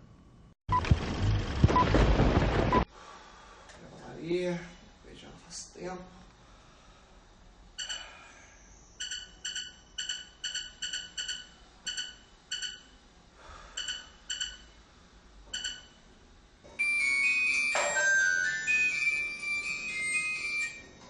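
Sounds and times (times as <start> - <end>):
phone keypad beeps: 9.0 - 12.9, 13.8 - 14.7, 15.5 - 16.0.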